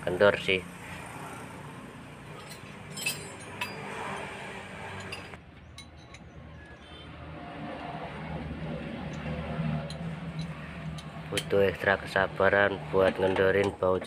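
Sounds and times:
socket wrench clinking: 2.4 - 4.3, 9.1 - 11.6.

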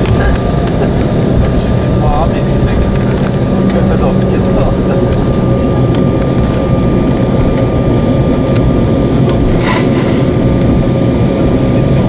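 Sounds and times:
aircraft engine rumble: 0.0 - 12.0
brief hiss: 9.5 - 10.4.

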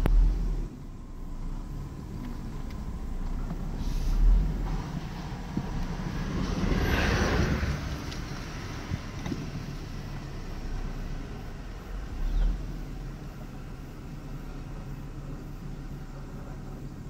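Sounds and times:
steady low rumble: 0.0 - 17.0
car passing by: 3.4 - 14.6.

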